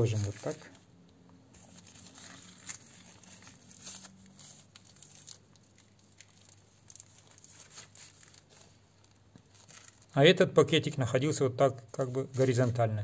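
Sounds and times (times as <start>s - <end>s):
plastic bags crinkling: 0.0s - 0.8s, 1.5s - 10.2s.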